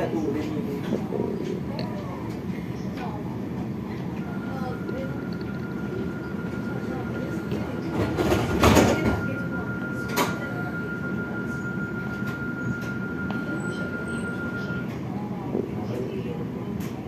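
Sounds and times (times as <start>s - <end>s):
steady high tone: 4.0s - 15.0s.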